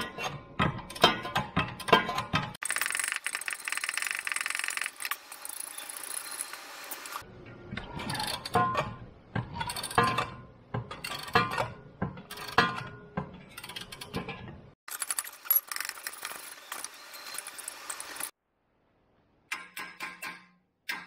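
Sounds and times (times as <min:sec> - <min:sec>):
ratchet wrench clicking: 0:02.6 - 0:06.5.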